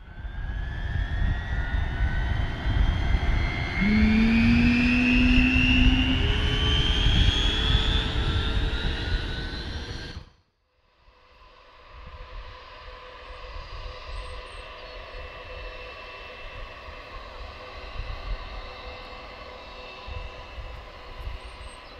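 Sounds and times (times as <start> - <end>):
jet engines whining and rumbling: 0.0 - 10.3, 11.2 - 21.9
distant engine: 1.8 - 10.2.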